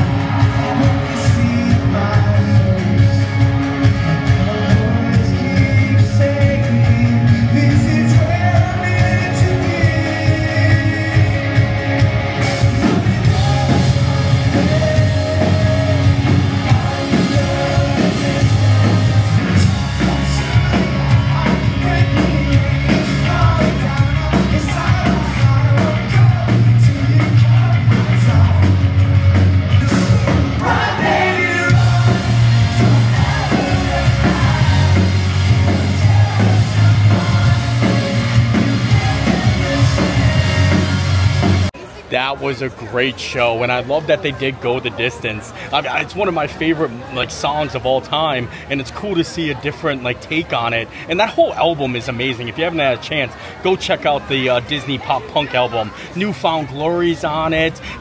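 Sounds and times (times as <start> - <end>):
male lead vocals: 0.0 - 41.7
pop-punk band playing live: 0.0 - 42.0.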